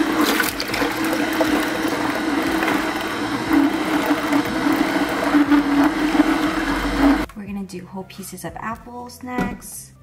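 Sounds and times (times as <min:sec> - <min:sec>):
juicer motor humming: 0:00.0 - 0:07.3.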